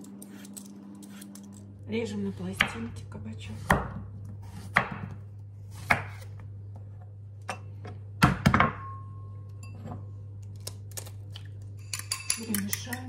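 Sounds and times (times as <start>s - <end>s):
ceramic bowl ringing: 8.7s - 10.1s.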